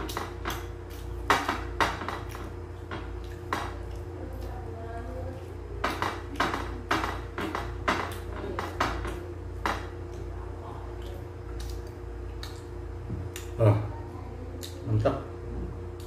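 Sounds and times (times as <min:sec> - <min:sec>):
eating by hand from a plate: 0:00.0 - 0:04.7
steady low hum: 0:00.0 - 0:16.0.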